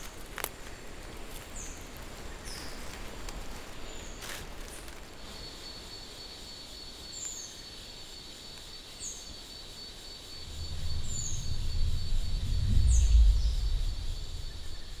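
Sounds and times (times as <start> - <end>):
high-pitched insect drone: 9.0 - 15.0
low rumble: 10.4 - 15.0.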